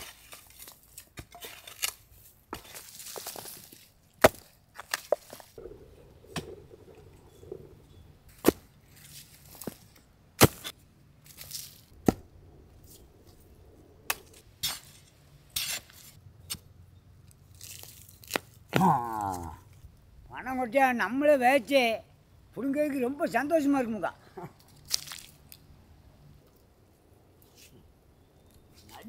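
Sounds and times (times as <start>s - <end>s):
sharp knocks and cracks: 17.6s - 18.9s.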